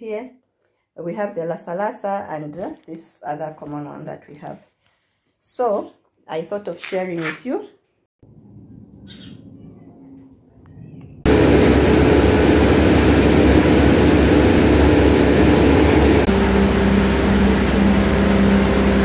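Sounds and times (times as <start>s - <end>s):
grain machine running: 11.3s - 19.0s.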